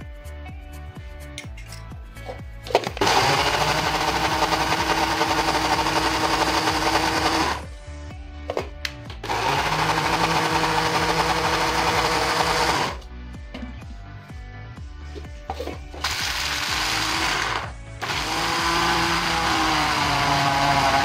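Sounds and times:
electric grinder motor: 3.0 - 7.7, 9.2 - 13.0, 16.0 - 21.0.

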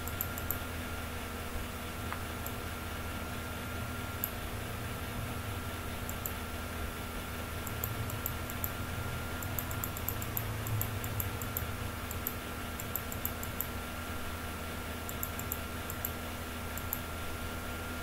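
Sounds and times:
low electrical hum: 0.0 - 18.0
mouse scroll wheel clicking: 6.1 - 6.4, 7.6 - 8.8, 9.4 - 13.7, 15.1 - 17.0.

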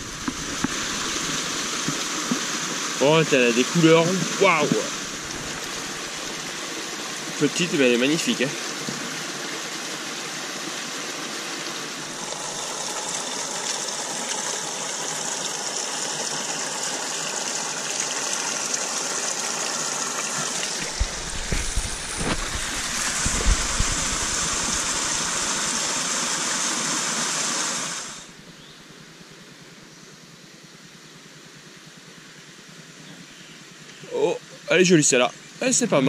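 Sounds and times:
low knocks and splashes: 0.0 - 2.5, 20.4 - 25.6
stream water rushing: 0.0 - 28.4.

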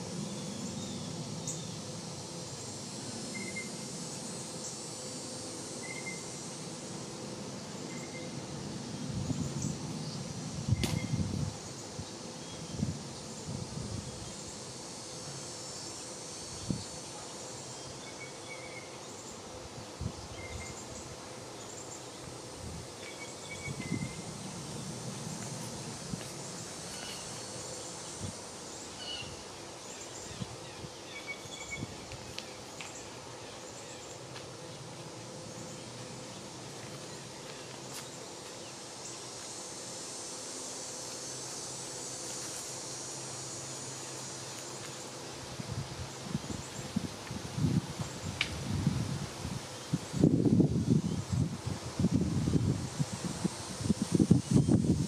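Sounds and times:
insects humming: 0.0 - 55.0
sharp click: 10.8 - 11.1.

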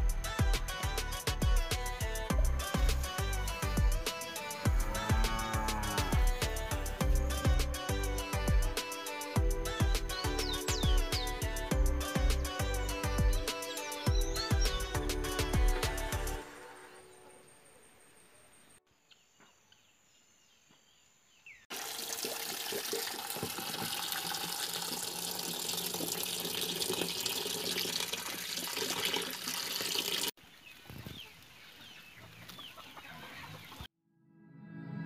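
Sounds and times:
birds calling: 10.0 - 11.7, 12.5 - 16.2, 30.4 - 33.9
tap water splashing into colander: 21.7 - 30.3.

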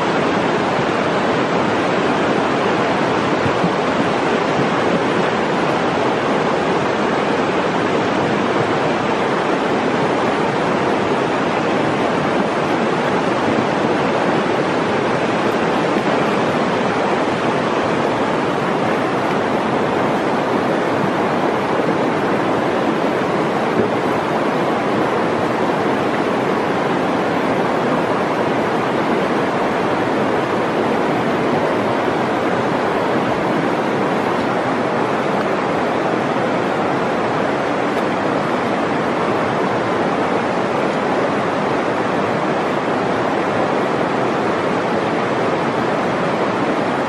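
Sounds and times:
river water rushing over rocks: 0.0 - 47.0.

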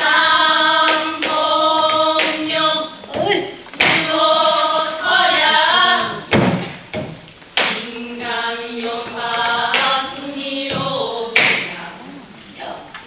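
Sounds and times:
women singing in unison: 0.0 - 6.5, 7.6 - 13.0
sharp drum strokes: 3.1 - 8.3.

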